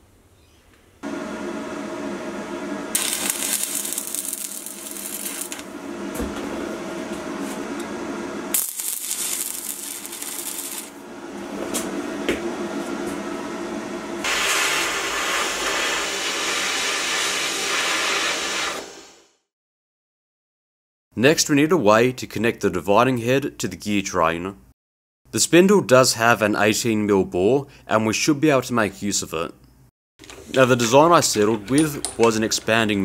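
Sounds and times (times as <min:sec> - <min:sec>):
welder hum: 0:01.0 - 0:18.9
arc welding crackling: 0:02.9 - 0:05.7, 0:08.5 - 0:11.0.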